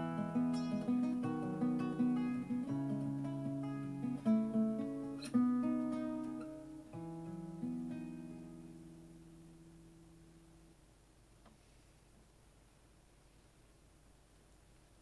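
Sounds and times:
acoustic guitar playing: 0.0 - 10.7.

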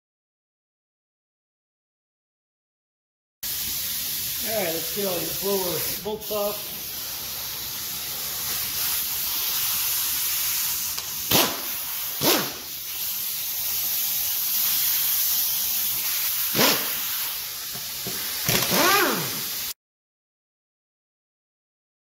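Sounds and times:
steady hiss: 3.4 - 19.8
power tool bursts: 8.4 - 13.7, 15.8 - 19.8.

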